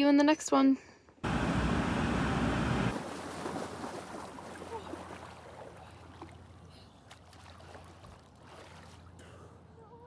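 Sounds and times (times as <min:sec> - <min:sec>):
water splashing: 0:01.7 - 0:09.2.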